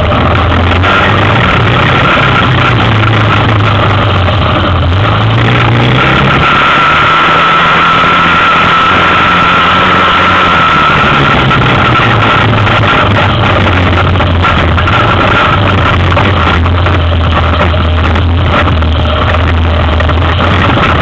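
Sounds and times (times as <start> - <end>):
high whine: 0.0 - 21.0
quad bike engine running: 0.0 - 21.0.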